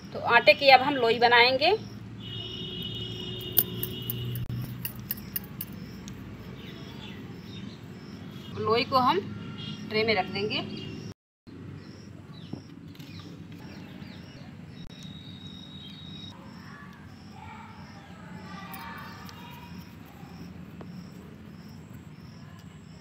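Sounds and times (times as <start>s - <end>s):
insect chirping: 1.8s - 8.5s, 14.9s - 23.0s.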